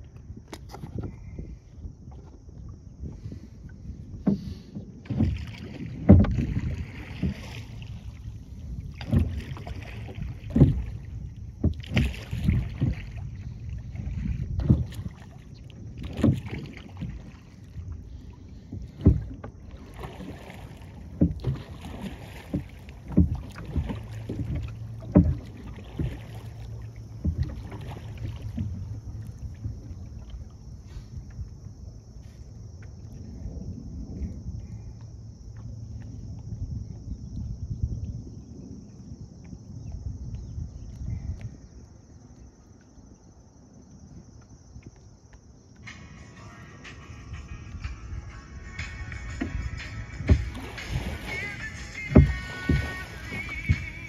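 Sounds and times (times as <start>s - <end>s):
oars knocking against boat: 0.0s - 54.0s
oar blades splashing water: 2.0s - 38.8s, 48.8s - 54.0s.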